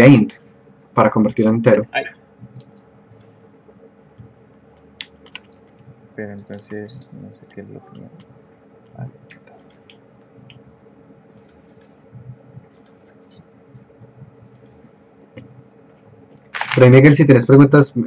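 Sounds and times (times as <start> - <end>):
faint steady hum: 0.0 - 18.0
computer mouse and keys clicking: 2.4 - 3.4, 4.2 - 8.3, 9.3 - 10.6, 11.3 - 12.0, 12.6 - 16.8.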